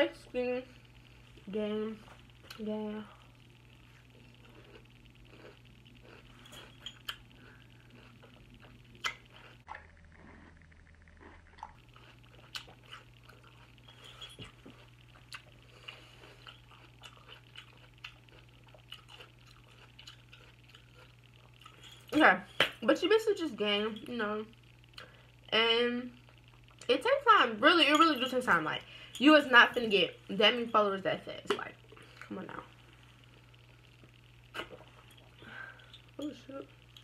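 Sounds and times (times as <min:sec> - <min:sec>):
low steady hum: 0:00.0 - 0:37.0
person chewing wetly: 0:03.9 - 0:21.8.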